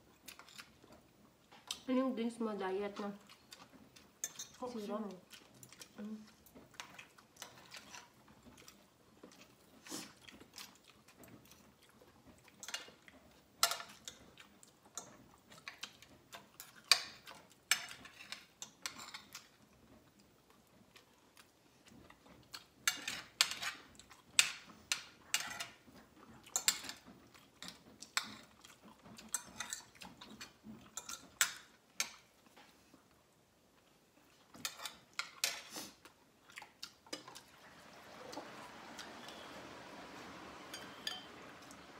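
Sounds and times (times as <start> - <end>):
chewing and mouth clicks: 3.2 - 4.6, 5.2 - 13.2, 26.2 - 32.6, 33.8 - 37.5.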